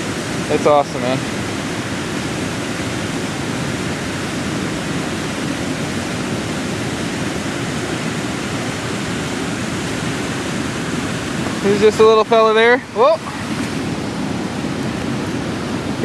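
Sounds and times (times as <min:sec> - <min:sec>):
waterfall roaring: 0:00.0 - 0:16.0.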